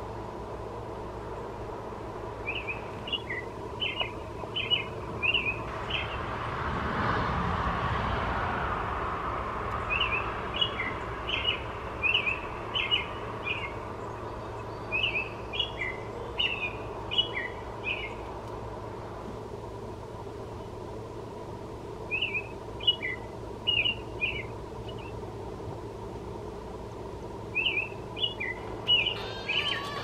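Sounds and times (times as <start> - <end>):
songbird chirping: 2.4 - 6.3, 9.7 - 18.6, 22.0 - 25.3, 27.3 - 30.0
rushing noise: 3.5 - 13.9, 28.6 - 30.0.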